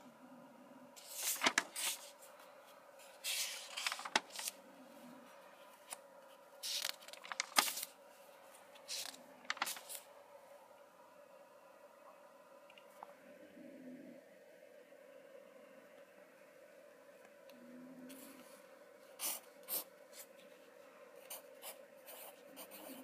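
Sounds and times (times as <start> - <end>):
paper pages rustling: 1.0 - 4.6, 6.6 - 10.1.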